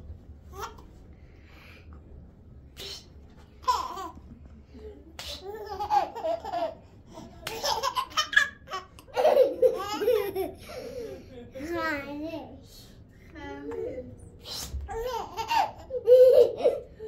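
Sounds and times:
small children laughing: 5.2 - 11.3, 14.8 - 17.0.

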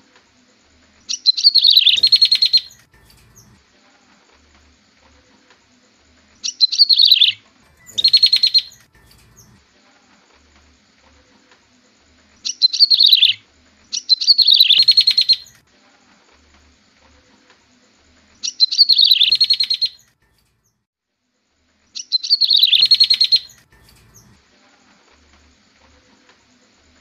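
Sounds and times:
high bird chirps: 1.1 - 3.6, 6.4 - 9.6, 12.4 - 15.6, 18.4 - 20.1, 22.0 - 24.4.

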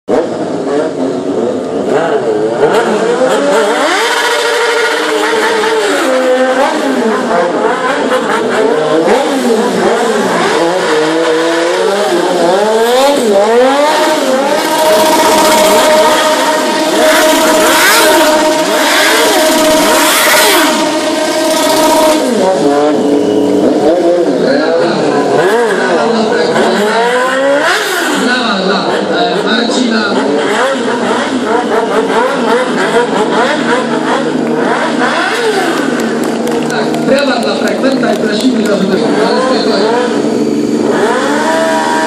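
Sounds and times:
motorcycle engine revving: 0.1 - 42.0.

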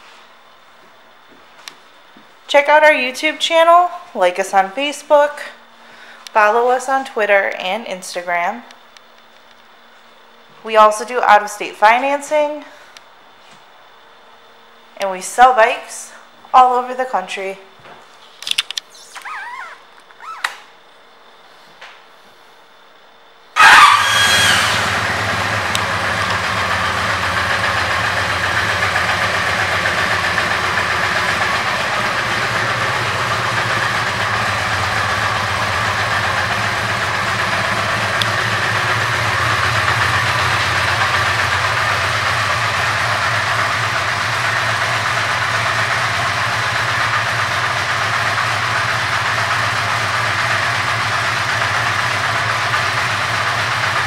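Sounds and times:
motorcycle engine idling: 23.6 - 54.0.

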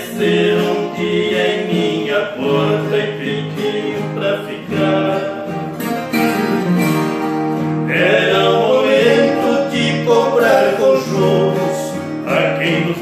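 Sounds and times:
plucked and strummed guitars: 0.0 - 13.0.

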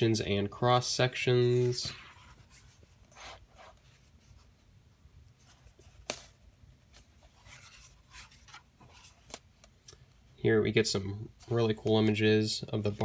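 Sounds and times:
book pages rustling: 1.4 - 4.7, 5.3 - 10.2.

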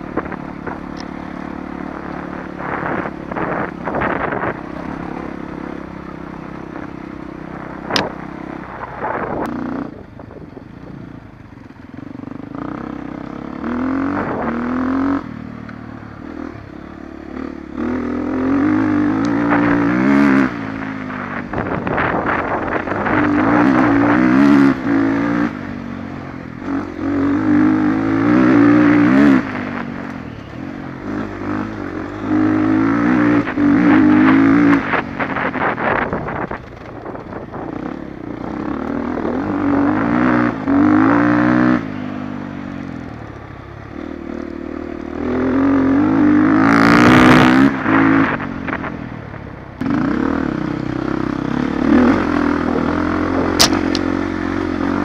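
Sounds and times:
dirt bike engine revving: 0.0 - 10.0, 12.2 - 48.9, 49.8 - 55.0
sharp click: 53.6 - 54.1.

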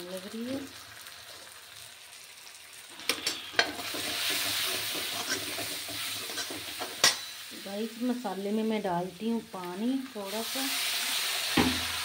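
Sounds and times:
spices sizzling in hot oil: 0.0 - 12.0
metal spoon scraping a pan: 3.0 - 7.4.

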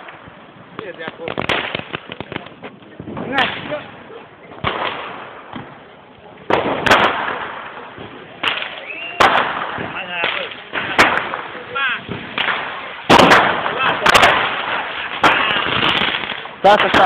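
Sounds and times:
firecrackers banging: 0.0 - 17.0
rising firework whistle: 8.4 - 9.6.

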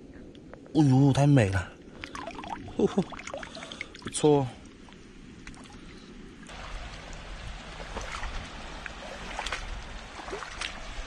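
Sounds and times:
shallow water trickling and lapping: 1.7 - 11.0.

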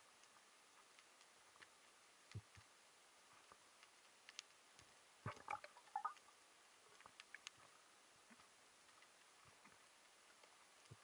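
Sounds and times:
underwater clicks and knocks: 5.2 - 6.2.

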